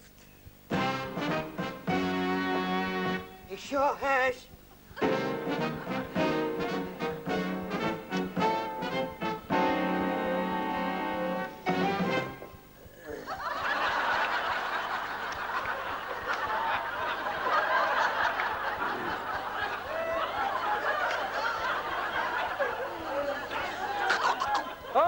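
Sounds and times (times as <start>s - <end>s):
brass band chord: 0.7s - 3.5s, 5.0s - 12.7s
studio audience laughing: 13.1s - 25.0s.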